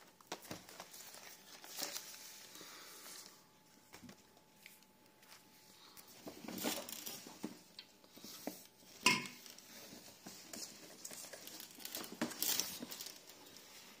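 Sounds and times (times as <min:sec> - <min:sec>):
groceries rustling in cardboard box: 0:00.3 - 0:03.4, 0:09.5 - 0:14.0.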